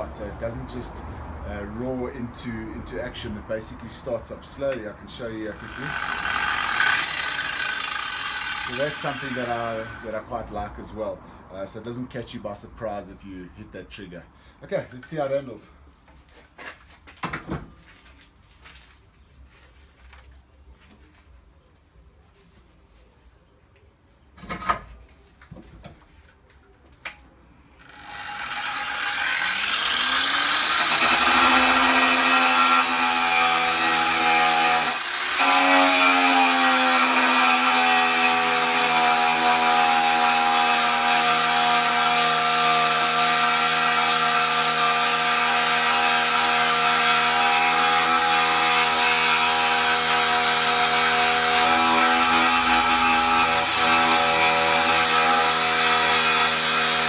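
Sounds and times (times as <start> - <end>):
angle grinder grinding steel: 5.4 - 10.2, 27.8 - 57.0.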